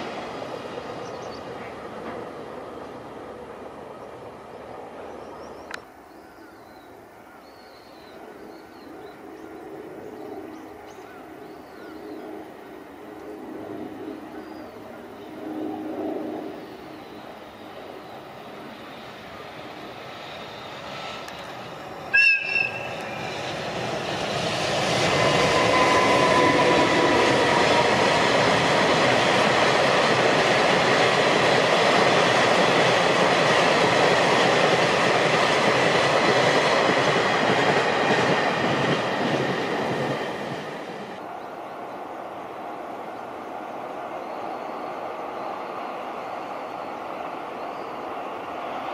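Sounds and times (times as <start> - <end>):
freight train rumbling and clattering: 0.0 - 5.8, 17.3 - 41.3
train horn blast: 22.1 - 23.2, 25.3 - 27.9.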